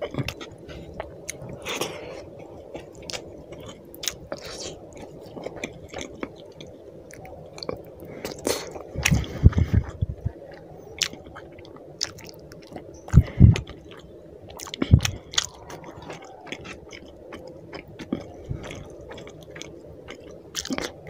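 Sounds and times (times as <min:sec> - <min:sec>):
wet chewing and lip smacking: 0:00.0 - 0:21.0.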